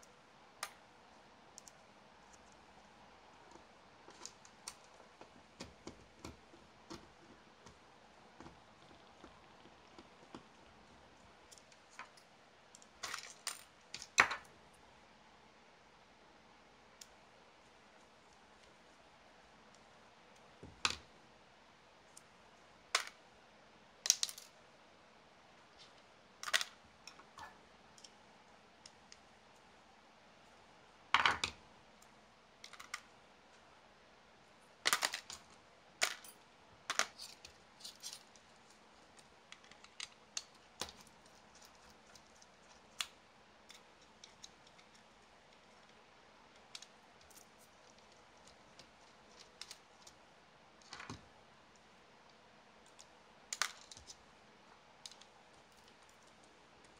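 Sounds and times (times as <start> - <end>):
small parts and tools clicking: 34.9 - 50.2, 55.0 - 56.9.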